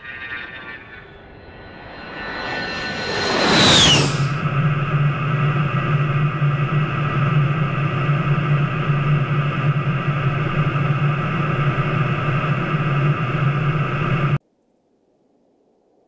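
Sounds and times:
jet engines droning: 0.0 - 14.4
air rushing past canopy: 1.8 - 4.6.

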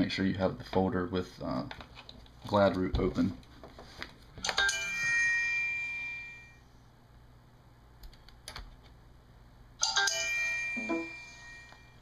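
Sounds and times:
electronic computer chime: 10.0 - 12.0.

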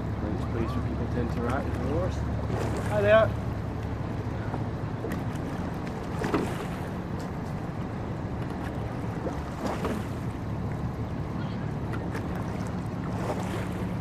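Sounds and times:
low hum of water and wind: 0.0 - 14.0
oar blades splashing: 1.2 - 3.3, 5.0 - 7.3, 8.4 - 10.4, 11.9 - 14.0.

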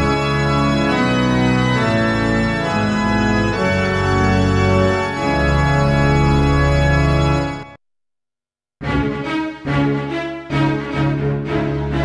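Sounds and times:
synthesizer organ chords: 0.0 - 7.8.

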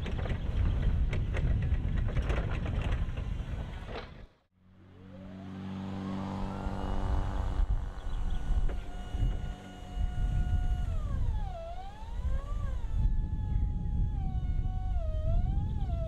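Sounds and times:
hydraulic pump motor whine: 4.8 - 16.0.

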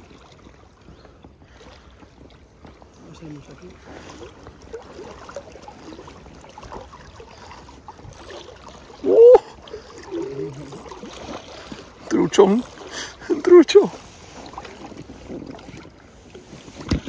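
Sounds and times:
river water flowing: 0.0 - 17.0
man shouting: 9.0 - 9.5
quiet voice: 9.1 - 10.8.

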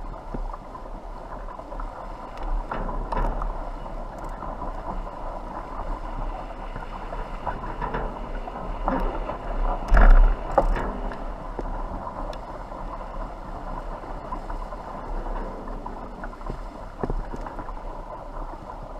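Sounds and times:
rush of wind and water: 0.0 - 18.9
rigging clicks: 2.3 - 5.0.

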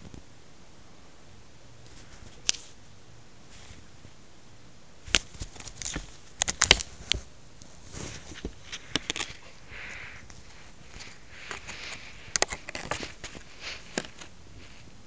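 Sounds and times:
plastic packaging clicks and crinkles: 5.1 - 7.3, 8.0 - 9.6, 10.3 - 14.3.

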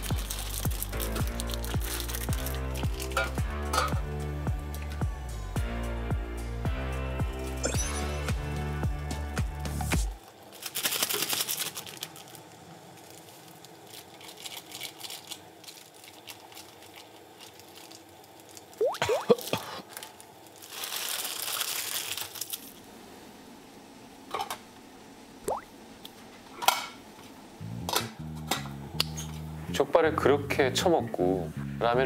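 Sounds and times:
packets crinkling and tearing: 0.0 - 3.4, 10.2 - 22.8.

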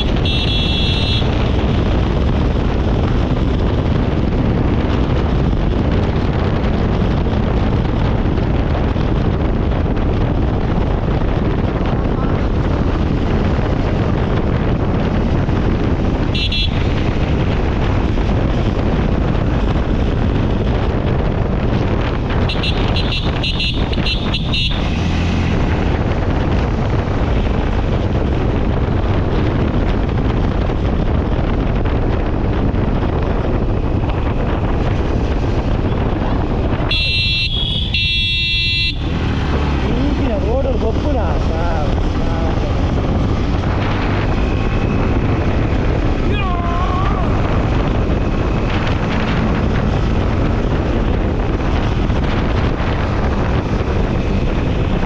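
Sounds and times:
road noise: 0.0 - 55.0
wind rush: 0.0 - 55.0
vehicle horn beeps: 0.1 - 1.4, 16.4 - 16.9, 22.5 - 25.0, 36.9 - 39.1.

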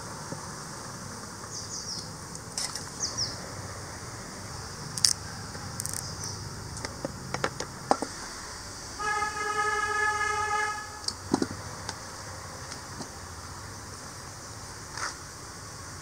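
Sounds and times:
vehicle horn: 9.0 - 11.2.

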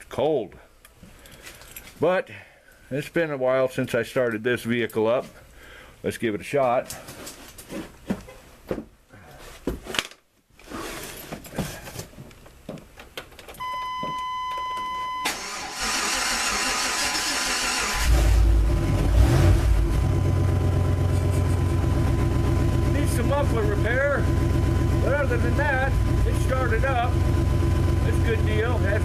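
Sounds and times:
electronic warning beep: 13.6 - 15.4.

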